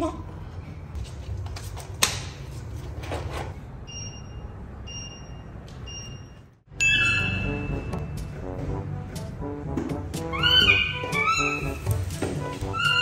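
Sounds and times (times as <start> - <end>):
short high beeps: 4.0 - 7.9
music with held high note: 6.8 - 8.5.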